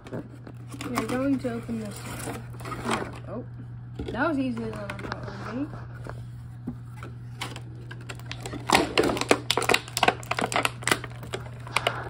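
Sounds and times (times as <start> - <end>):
toy packaging clicking and crackling: 0.0 - 3.3, 7.3 - 12.0.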